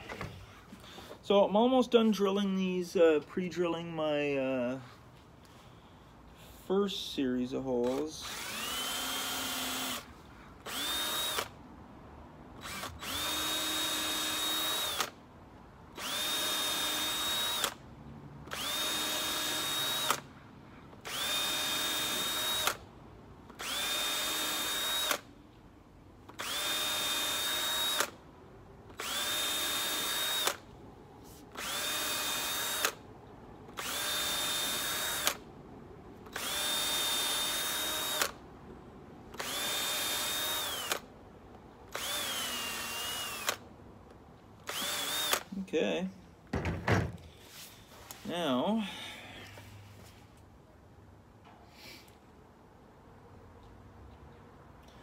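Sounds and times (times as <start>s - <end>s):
cordless drill whining: 7.7s - 11.6s, 12.6s - 15.2s, 15.9s - 17.8s, 18.4s - 20.3s, 20.9s - 22.8s, 23.5s - 25.3s, 26.3s - 28.2s, 28.9s - 30.7s, 31.4s - 33.0s, 33.7s - 35.5s, 36.2s - 38.4s, 39.3s - 41.1s, 41.9s - 43.7s, 44.6s - 45.5s.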